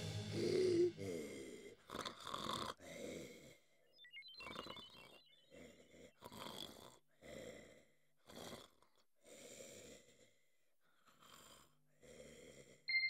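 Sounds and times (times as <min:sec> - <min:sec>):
soft snoring: 0:05.5 - 0:12.9.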